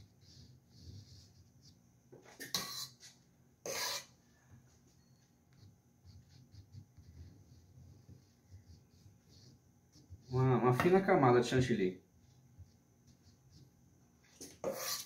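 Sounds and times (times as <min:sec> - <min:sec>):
spatula scraping whipped cream: 0:02.4 - 0:04.2, 0:14.4 - 0:15.0.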